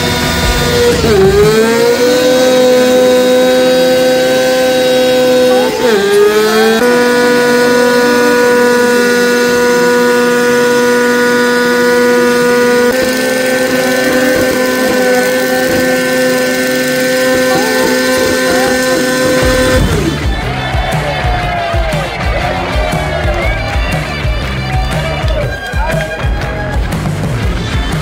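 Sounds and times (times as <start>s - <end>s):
motorcycle engine at high revs: 0.0s - 21.0s.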